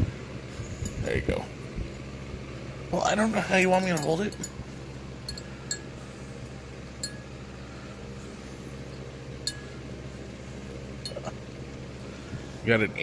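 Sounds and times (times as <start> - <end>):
low background hum: 0.0 - 13.0
metallic collar clinks: 3.8 - 4.6, 5.3 - 5.9.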